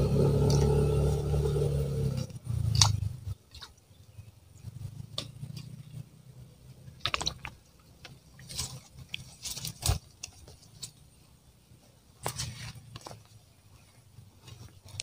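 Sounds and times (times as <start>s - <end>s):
rustling and scraping: 6.9s - 11.3s, 12.2s - 15.0s.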